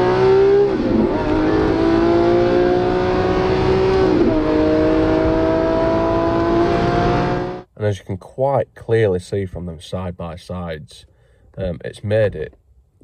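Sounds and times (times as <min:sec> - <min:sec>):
car engine accelerating hard: 0:00.0 - 0:07.7.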